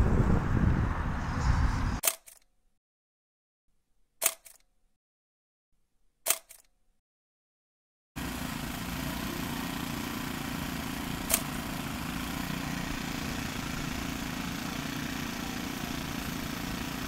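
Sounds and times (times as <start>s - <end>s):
outdoor background noise: 8.2s - 17.0s.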